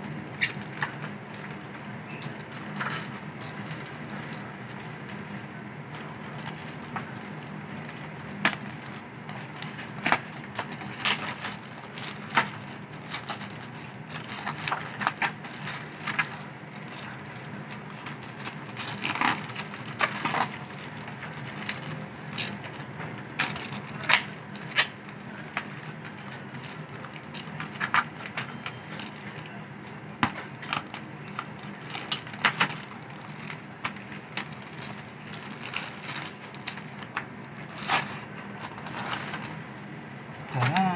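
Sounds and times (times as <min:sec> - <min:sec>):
steady low hum: 0:00.0 - 0:40.9
plastic packaging crinkling: 0:05.9 - 0:39.7.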